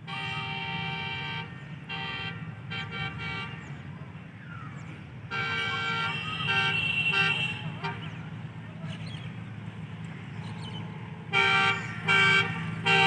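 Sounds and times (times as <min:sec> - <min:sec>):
locomotive air horn blasts: 0:00.0 - 0:03.8, 0:05.3 - 0:08.2, 0:11.2 - 0:13.0.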